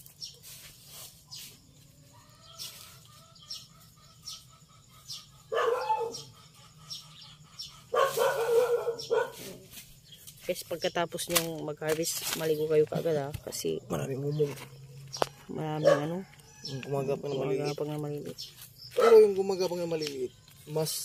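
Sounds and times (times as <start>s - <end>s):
dog barking: 5.5s - 6.3s, 7.9s - 9.6s, 15.8s - 16.2s, 19.0s - 19.3s.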